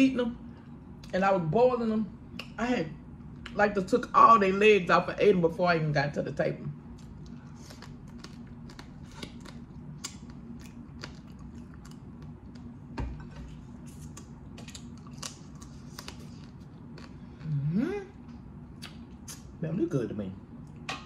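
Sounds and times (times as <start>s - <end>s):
faint low hum: 0.0s - 21.0s
chewing and picking crab: 6.9s - 12.8s.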